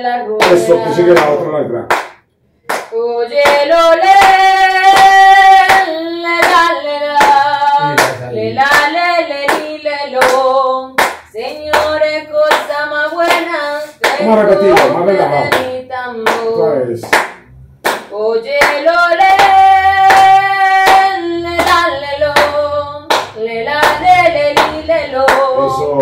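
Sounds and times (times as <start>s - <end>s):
person singing long notes: 23.7s - 26.0s.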